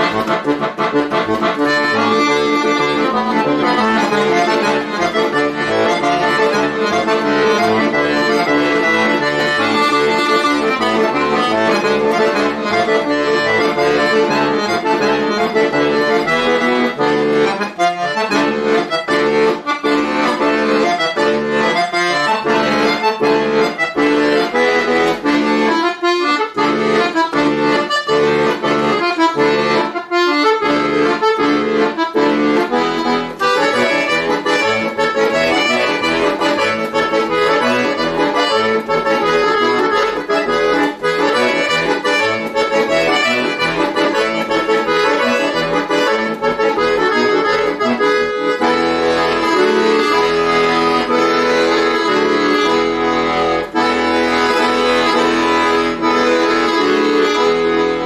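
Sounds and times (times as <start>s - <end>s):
accordion playing chords: 0.0s - 58.0s.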